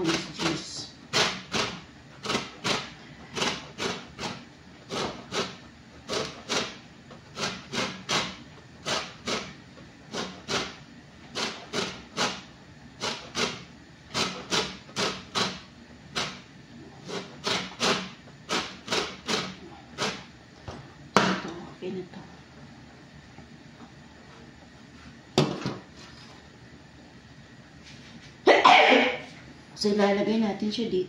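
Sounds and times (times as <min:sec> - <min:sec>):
peel rasping on metal grater: 0:01.1 - 0:12.4.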